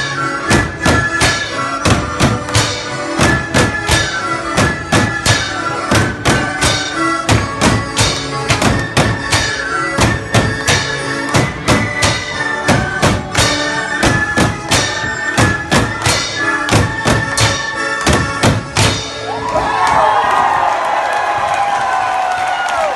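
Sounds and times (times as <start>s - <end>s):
fife melody: 0.0s - 19.2s
field drums playing: 0.5s - 19.2s
crowd cheering and whooping: 19.1s - 22.9s.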